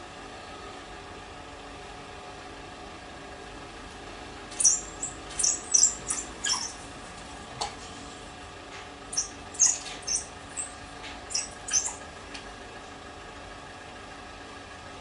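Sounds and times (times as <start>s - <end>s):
wild dogs squeaky chirps: 4.6s - 6.9s, 9.1s - 12.1s.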